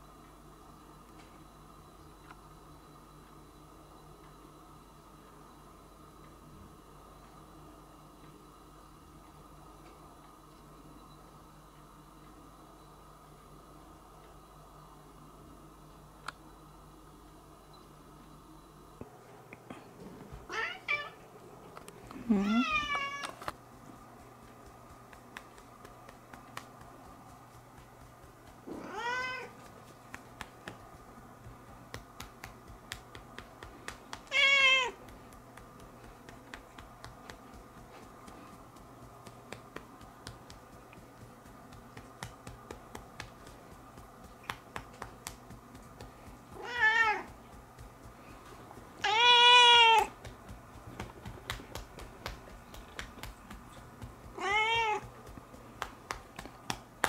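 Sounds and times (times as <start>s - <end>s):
cat meowing: 49.0s - 50.1s, 54.4s - 55.0s.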